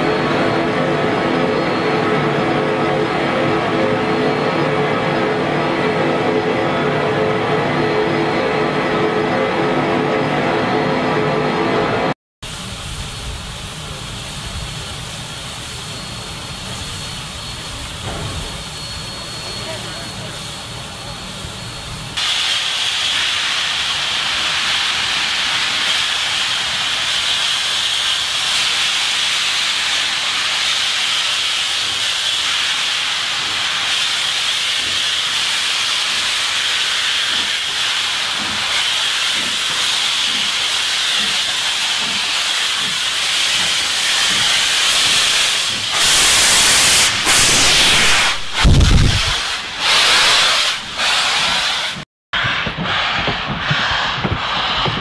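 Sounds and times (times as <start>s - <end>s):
steam locomotive venting steam: 11.9s - 55.0s.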